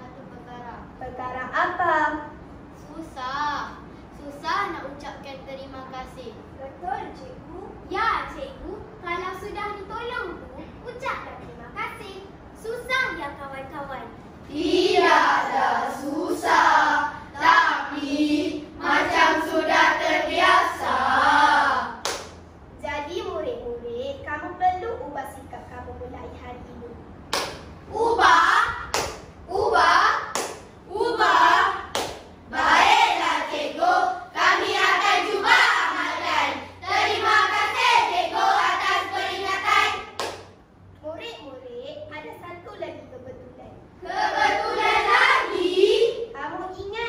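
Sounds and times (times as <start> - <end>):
children's choral recitation: 14.4 - 22.2, 27.9 - 40.4, 44.0 - 46.3.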